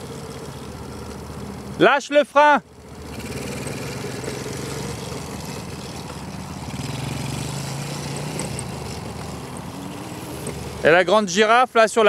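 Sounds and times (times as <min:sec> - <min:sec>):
quad engine humming: 0:00.0 - 0:12.0.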